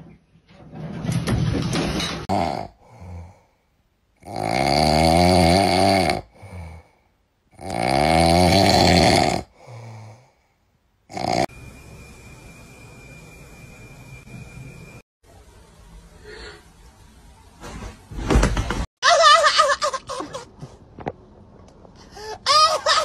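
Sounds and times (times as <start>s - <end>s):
pet snoring: 4.2s - 6.8s, 7.6s - 9.9s, 11.1s - 11.5s
steady hiss with high tone: 11.5s - 17.1s.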